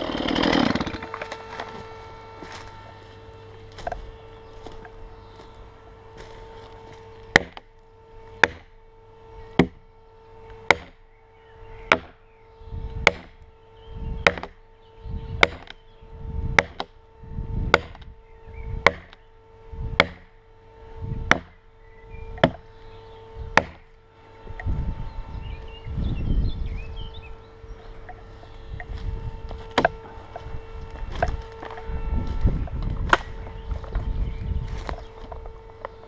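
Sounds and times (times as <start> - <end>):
steady hum: 0.0 - 36.0
axe striking wood: 7.3 - 7.6, 8.4 - 8.7, 10.7 - 11.0, 11.9 - 12.2, 13.0 - 13.4, 14.2 - 14.5, 15.4 - 15.7, 16.6 - 16.9, 18.8 - 19.2, 20.0 - 20.2, 21.3 - 21.5, 23.6 - 23.8, 29.8 - 30.0.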